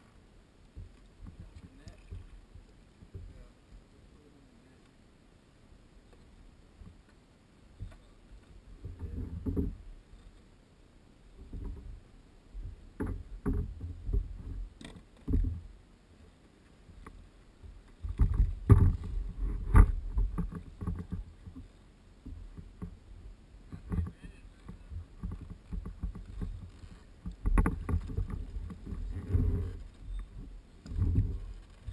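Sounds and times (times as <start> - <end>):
water splashing around kayaks: 0.0 - 31.9
knocks against kayak hulls: 12.6 - 15.6, 17.6 - 23.0.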